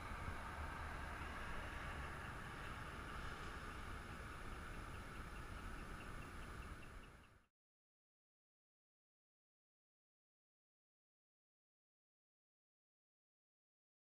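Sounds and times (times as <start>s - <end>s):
heavy truck passing: 0.0s - 7.3s.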